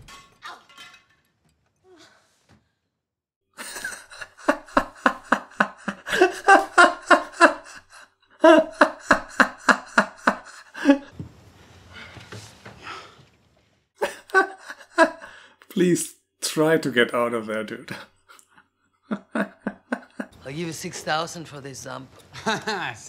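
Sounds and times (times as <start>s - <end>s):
man laughing hard: 3.6s - 11.1s.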